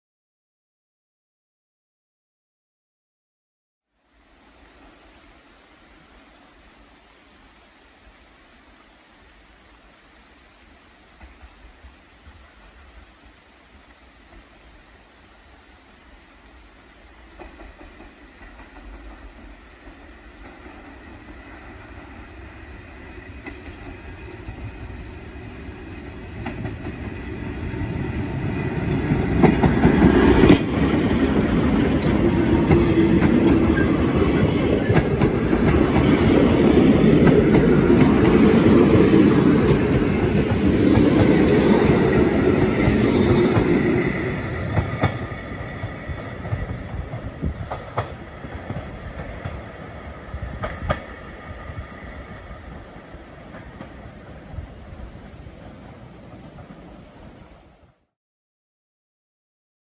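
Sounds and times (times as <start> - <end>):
train rumble: 15.6 - 57.9
wheels clacking over rail joints: 26.3 - 49.8.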